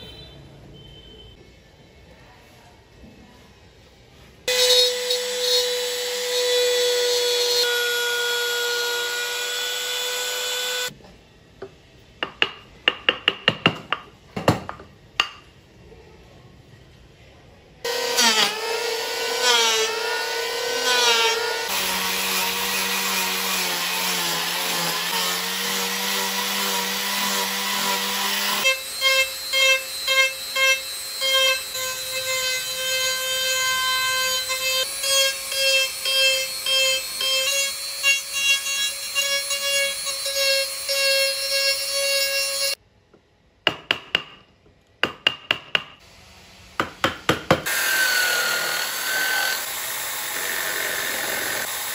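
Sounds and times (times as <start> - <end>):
hammer striking chisel: 12.2 - 15.5, 43.6 - 46.0, 46.8 - 47.8.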